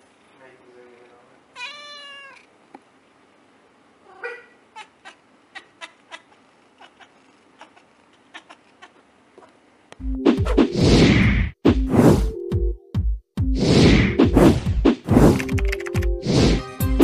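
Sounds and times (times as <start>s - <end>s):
cat meowing: 1.6s - 2.5s, 4.0s - 9.6s
whoosh: 13.6s - 15.4s
loud music: 15.5s - 17.0s.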